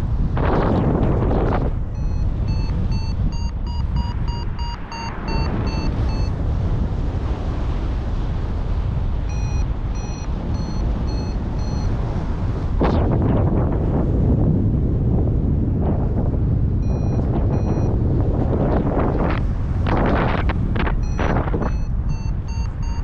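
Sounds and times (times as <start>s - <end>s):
wind rush on microphone: 0.0s - 23.0s
variometer beeping: 1.9s - 6.3s, 9.3s - 12.0s, 16.8s - 17.9s, 20.8s - 23.0s.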